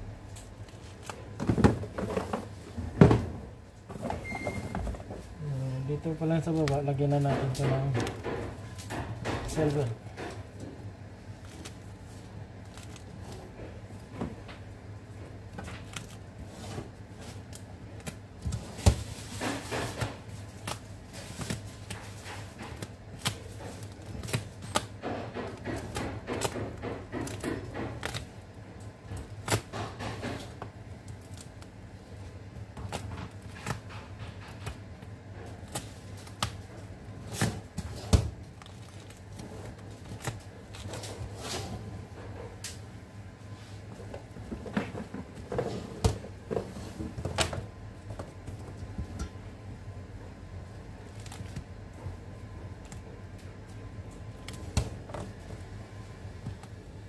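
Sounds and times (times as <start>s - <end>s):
steady low hum: 0.0s - 57.0s
foil wrappers rustling: 15.7s - 25.0s, 30.4s - 41.4s.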